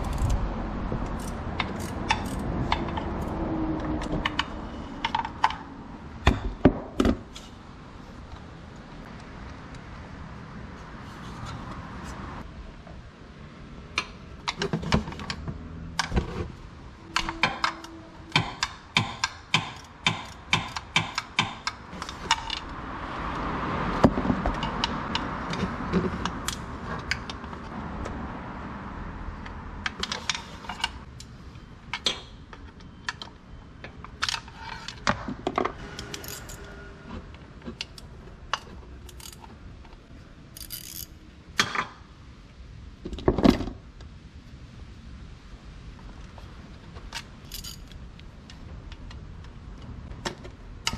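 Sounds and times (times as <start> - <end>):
metal tools clinking: 36.0 - 36.8, 40.6 - 41.7, 47.4 - 48.0.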